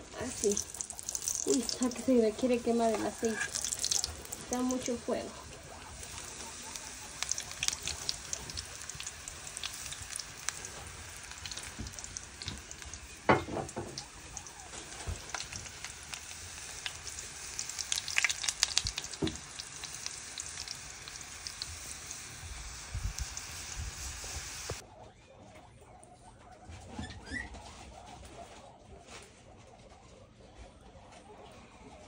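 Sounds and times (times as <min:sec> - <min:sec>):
food sizzling in hot oil: 0:00.2 - 0:24.8.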